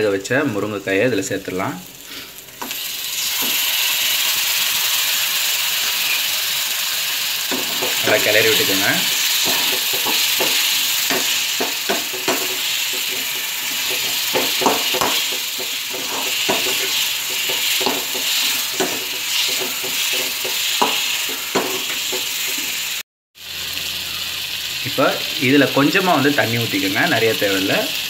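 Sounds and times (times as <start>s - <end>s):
food sizzling in a pan: 0.5s - 28.0s
metal spatula scraping pan: 7.5s - 22.8s.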